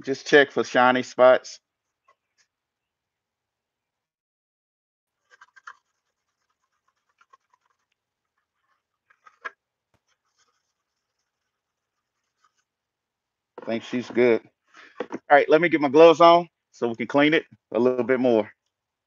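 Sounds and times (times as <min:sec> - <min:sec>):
pad rubbing plastic helmet: 0:05.1 - 0:12.8, 0:13.6 - 0:15.3.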